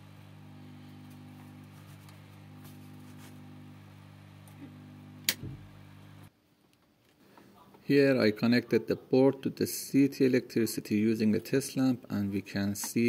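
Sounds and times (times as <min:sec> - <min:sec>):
low electrical hum: 0:00.0 - 0:13.0
sharp click: 0:05.2 - 0:05.5.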